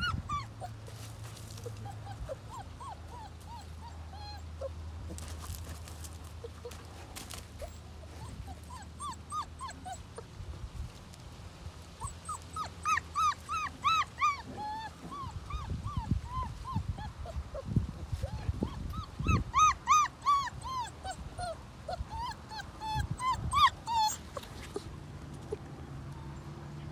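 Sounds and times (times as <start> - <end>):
puppy yelping and whimpering: 0.0 - 0.8, 1.5 - 4.8, 7.6 - 10.3, 12.0 - 24.9.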